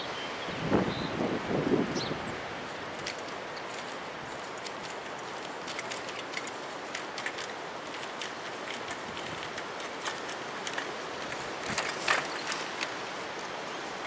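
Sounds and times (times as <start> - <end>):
strong wind rushing: 0.5 - 2.6
sharp clicks and rattles: 3.0 - 12.9.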